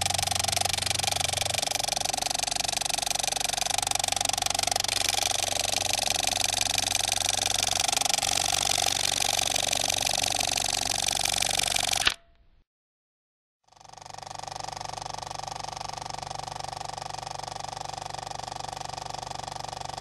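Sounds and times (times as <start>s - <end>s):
film projector rattling: 0.0s - 12.2s.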